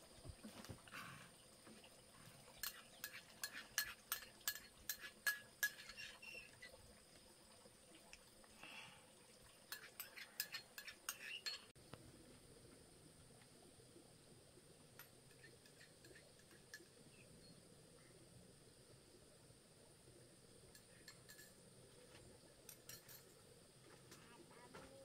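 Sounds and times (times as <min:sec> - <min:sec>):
spoon clinking on ceramic bowl: 0:02.6 - 0:06.3, 0:09.7 - 0:11.7.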